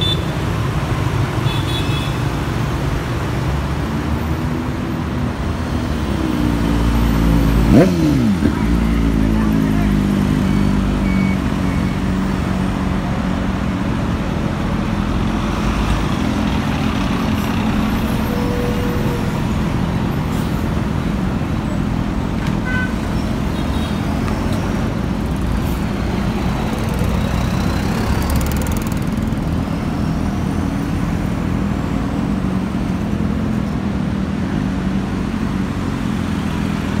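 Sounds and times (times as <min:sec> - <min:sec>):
passing motorbikes and cars: 0:00.0 - 0:37.0
road traffic: 0:00.0 - 0:37.0
bus engine running: 0:12.3 - 0:37.0.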